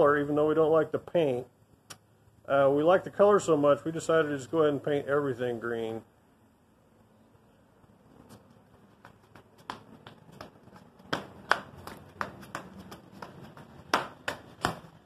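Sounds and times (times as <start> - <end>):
gloved hands tapping: 9.0 - 15.0.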